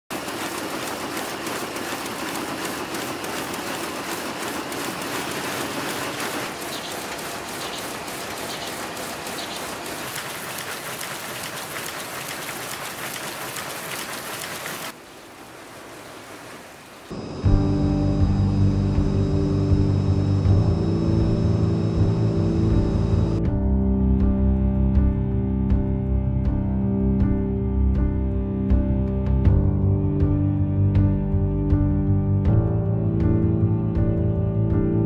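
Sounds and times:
textile machinery clattering: 0.1s - 14.9s.

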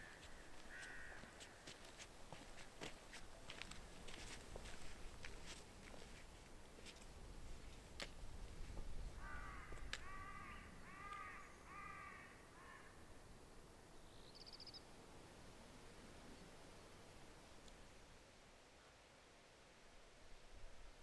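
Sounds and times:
bird calling: 9.2s - 13.0s.

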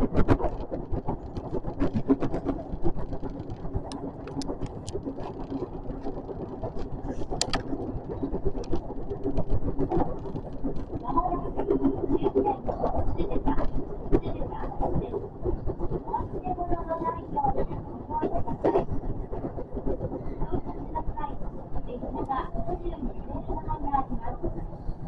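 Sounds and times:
train rumble and rattle: 0.0s - 25.0s
sharp clicks: 7.3s - 7.7s.

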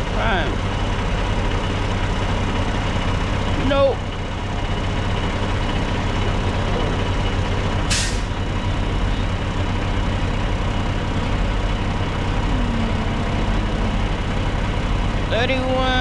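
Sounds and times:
diesel truck engine idling: 0.0s - 16.0s
short sharp hiss: 7.9s - 8.3s.

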